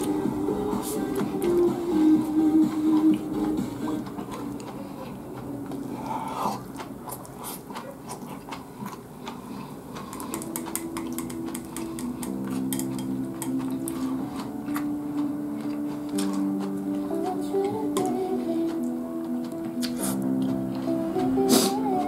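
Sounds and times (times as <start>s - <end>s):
background music with held notes: 0.0s - 6.1s, 10.2s - 22.0s
chewing: 0.0s - 22.0s
chopsticks clicking on ceramic bowl: 10.1s - 14.0s.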